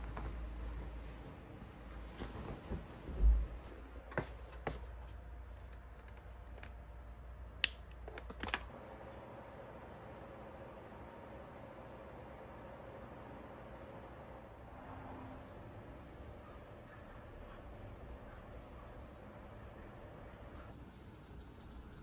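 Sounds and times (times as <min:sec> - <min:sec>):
bedding rustling: 0:00.0 - 0:06.5
crickets chirping: 0:00.0 - 0:16.1.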